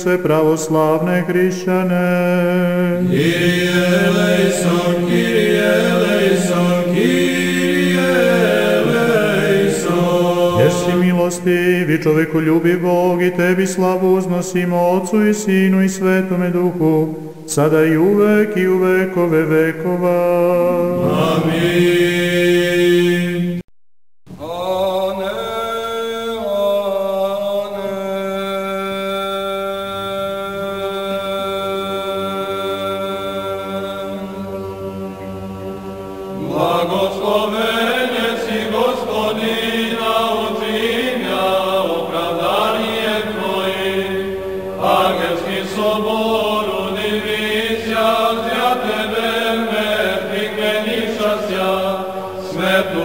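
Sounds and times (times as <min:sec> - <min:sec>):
unaccompanied voices chanting: 0:02.8 - 0:11.8, 0:20.8 - 0:23.4, 0:24.4 - 0:53.0
held drone note: 0:10.5 - 0:11.1.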